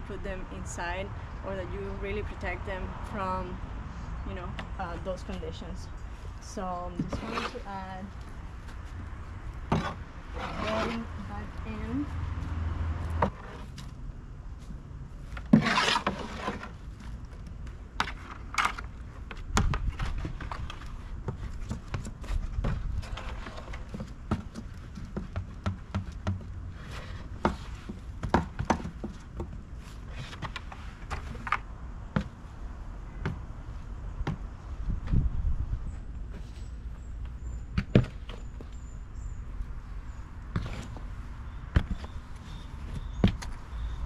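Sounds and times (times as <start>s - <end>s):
compost scraping rush: 6.1s - 13.9s, 15.2s - 17.2s.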